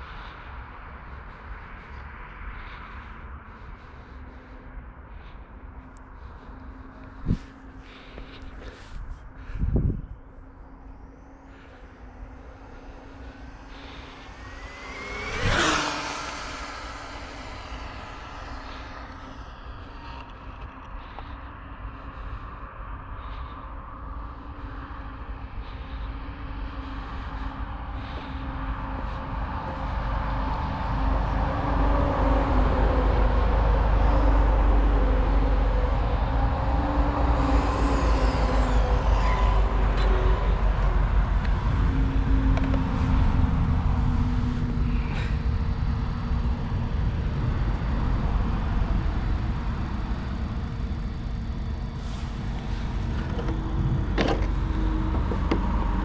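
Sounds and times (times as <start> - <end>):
low rumble: 0.0 - 56.0
rc car motor whine passing: 10.7 - 20.6, 35.6 - 56.0.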